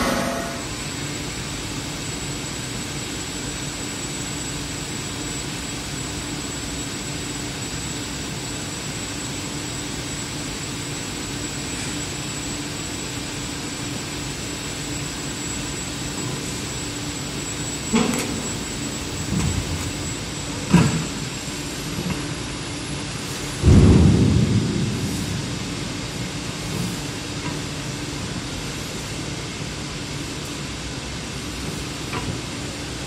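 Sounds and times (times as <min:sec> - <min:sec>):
thin high whine: 0:00.0 - 0:01.1
machinery low hum: 0:00.0 - 0:33.0
even rushing noise: 0:23.6 - 0:27.0.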